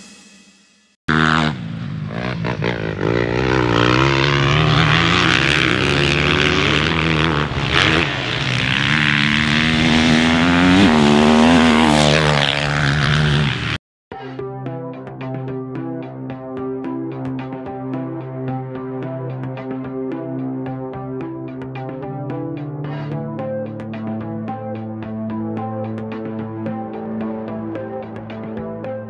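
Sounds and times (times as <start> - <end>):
motorcycle engine revving: 1.1 - 13.8.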